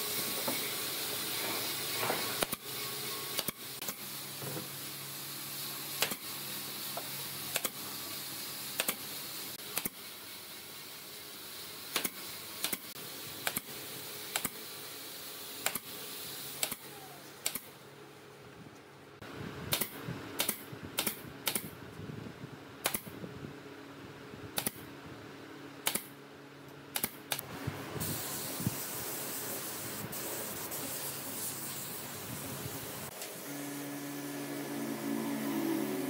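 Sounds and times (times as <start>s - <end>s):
nail gun firing into wood: 6.0s - 6.3s, 7.5s - 7.8s, 8.8s - 9.0s, 11.9s - 13.7s, 16.6s - 16.8s, 17.4s - 17.7s, 19.7s - 21.7s, 22.8s - 23.1s, 24.6s - 24.8s, 25.8s - 26.1s, 26.9s - 27.4s.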